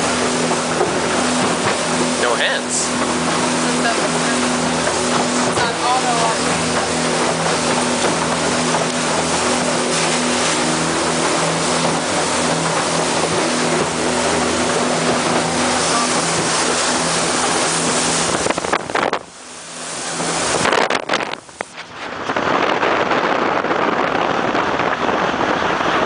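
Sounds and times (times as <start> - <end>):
boat engine drone: 0.0 - 26.0
rushing water and wind: 0.0 - 26.0.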